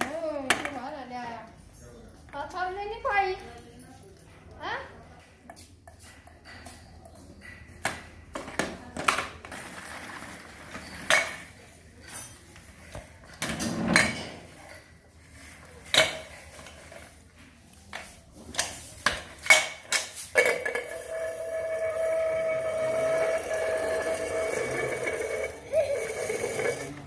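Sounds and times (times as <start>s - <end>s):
metal pot clanking on floor: 20.3s - 27.0s.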